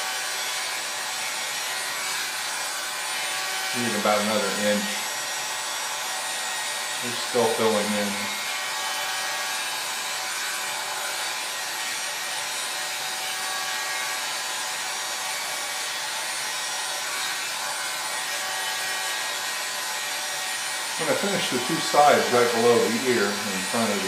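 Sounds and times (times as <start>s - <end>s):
hot air brush blowing: 0.0s - 24.0s.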